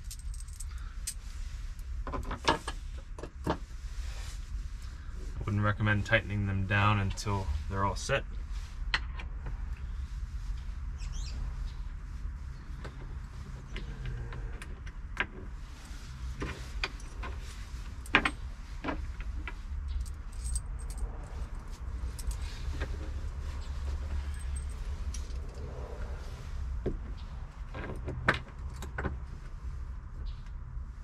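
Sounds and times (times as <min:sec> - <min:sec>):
metal bolts and washers clinking: 0:00.0 - 0:01.2, 0:19.9 - 0:22.4
low steady rumble: 0:00.0 - 0:31.0.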